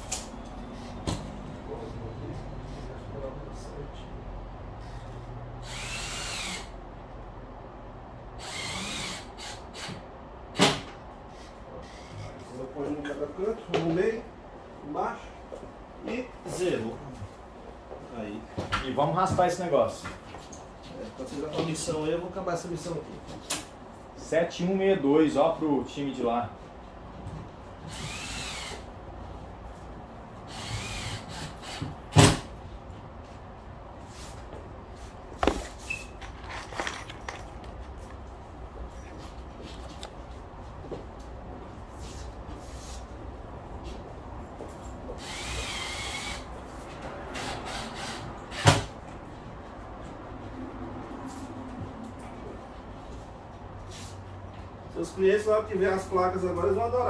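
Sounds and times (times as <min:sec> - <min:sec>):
power drill whining: 0:05.6 - 0:06.7, 0:08.4 - 0:10.0, 0:27.9 - 0:28.8, 0:30.5 - 0:31.9, 0:45.2 - 0:46.4.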